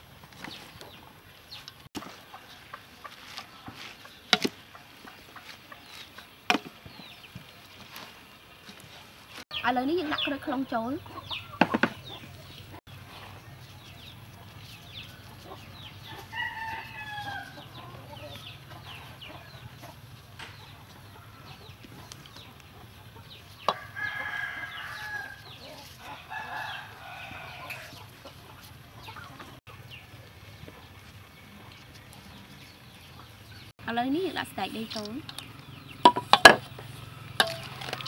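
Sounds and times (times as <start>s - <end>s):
chickens clucking: 0.4s - 24.9s, 27.6s - 33.7s
rooster crowing: 16.2s - 17.7s, 23.7s - 25.4s, 26.2s - 28.0s.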